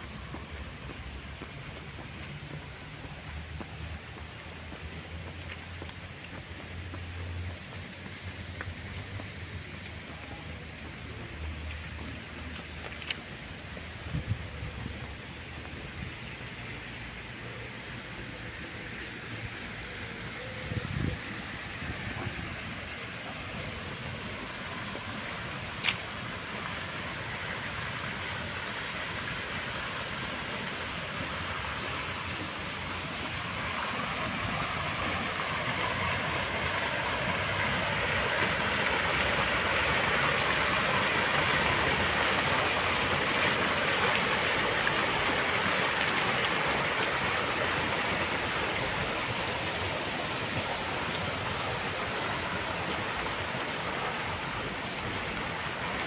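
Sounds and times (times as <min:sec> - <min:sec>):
fountain water splashing: 0:00.0 - 0:56.0
water spilling into pool: 0:24.0 - 0:56.0.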